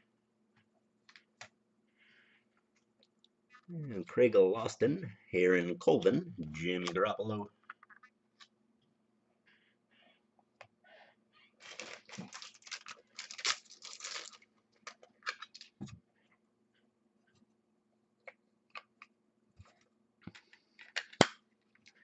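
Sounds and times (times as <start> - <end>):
wrappers crinkling: 11.6 - 15.8.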